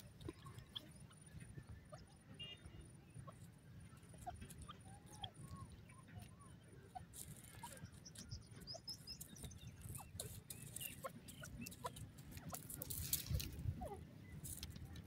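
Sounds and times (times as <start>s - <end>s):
bird pecking ticks: 3.4s - 13.6s
rustling in dry straw: 12.6s - 13.7s.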